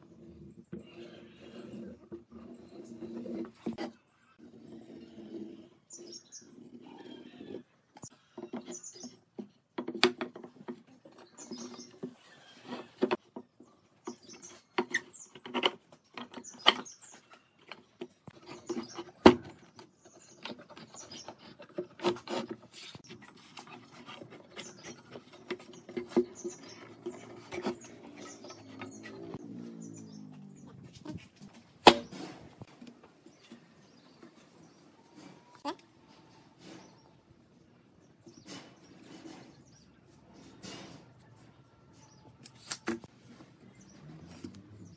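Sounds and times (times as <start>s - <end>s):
wooden knocks and clicks: 8.4s - 11.3s.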